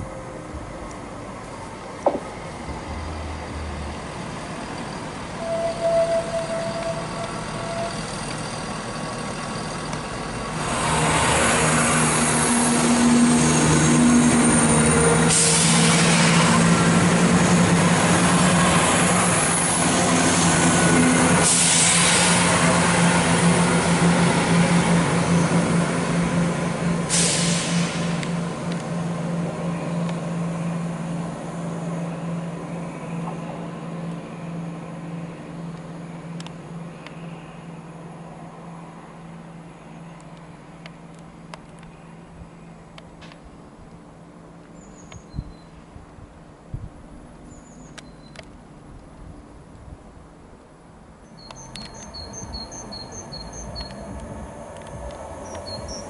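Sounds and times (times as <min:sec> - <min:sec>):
diesel train engine drone: 0:00.0 - 0:56.0
short hisses: 0:27.1 - 0:28.1.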